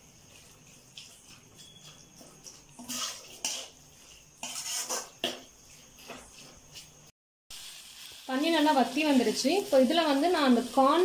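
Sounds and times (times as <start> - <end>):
metal spatula scraping a pan: 0.2 - 7.0.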